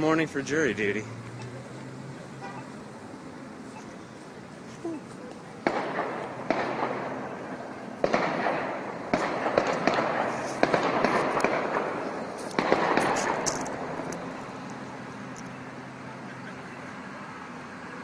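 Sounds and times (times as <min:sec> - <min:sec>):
gunshots echoing: 0:05.6 - 0:14.1.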